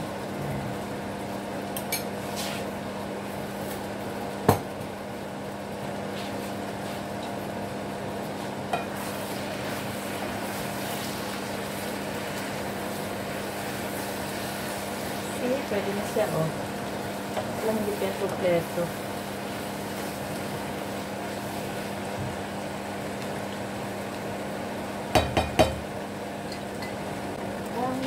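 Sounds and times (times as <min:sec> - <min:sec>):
noodles sizzling in a frying pan: 0:00.0 - 0:28.0
spatula stirring noodles: 0:08.4 - 0:22.0.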